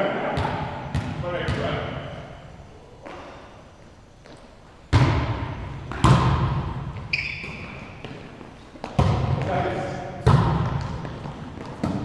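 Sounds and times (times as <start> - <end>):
volleyball hits echoing: 0.2 - 2.3, 4.9 - 12.0
brief high squeak: 7.1 - 7.8.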